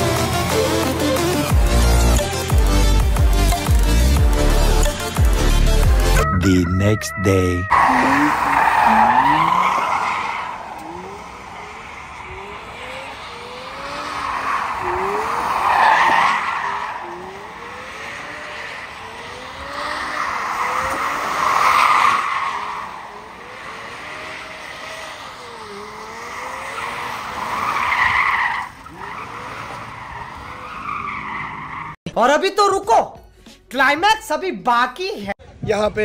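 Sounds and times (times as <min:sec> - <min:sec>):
car engine revving: 0:00.0 - 0:06.2, 0:07.7 - 0:32.0
tyres squealing: 0:06.0 - 0:17.5.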